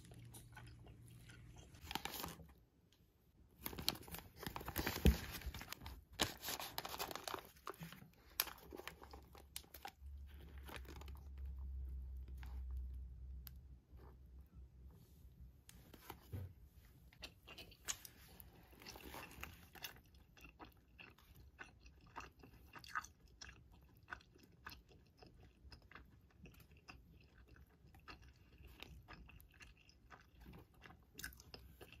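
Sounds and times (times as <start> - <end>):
chewing with small clicks: 0.0 - 1.9, 17.1 - 32.0
crisp bite crunching: 3.6 - 11.6.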